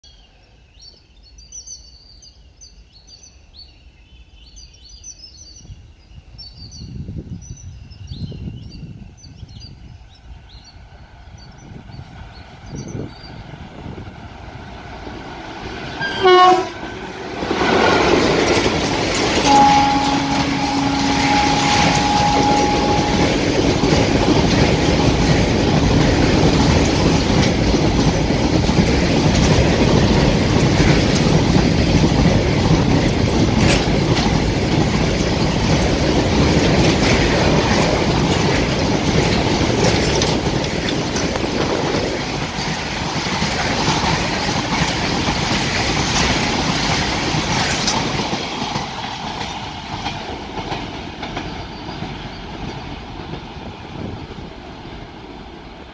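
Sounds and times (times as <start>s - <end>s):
train wheels rumbling on rails: 6.5s - 55.9s
wheels clacking at rail joints: 14.1s - 55.9s.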